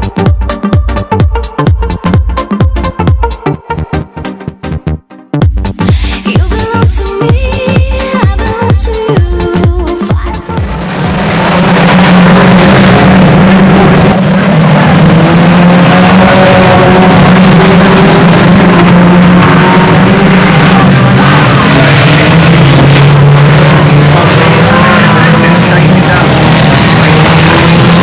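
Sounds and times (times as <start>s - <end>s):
race car engines droning: 5.9s - 28.0s.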